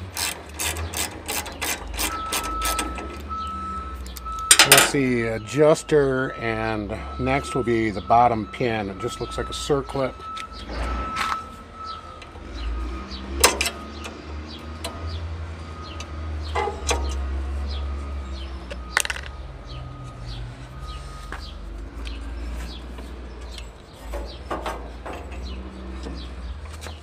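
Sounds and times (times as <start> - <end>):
small birds chirping: 0.7 - 27.0
metal clanks and knocks: 4.4 - 5.0, 13.4 - 14.1, 16.5 - 17.3, 18.7 - 19.4, 23.5 - 27.0.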